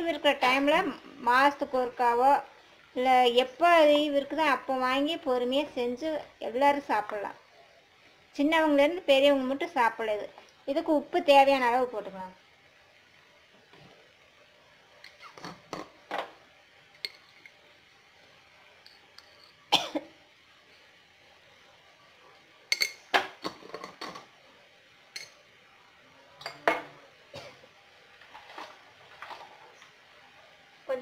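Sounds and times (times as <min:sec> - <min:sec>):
spoon clinking on containers: 0:18.8 - 0:19.6, 0:22.7 - 0:24.2, 0:25.1 - 0:25.4.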